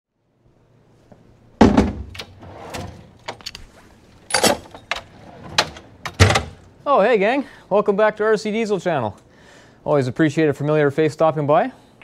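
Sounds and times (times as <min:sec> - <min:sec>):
metal clunks and knocks: 0:04.3 - 0:06.6.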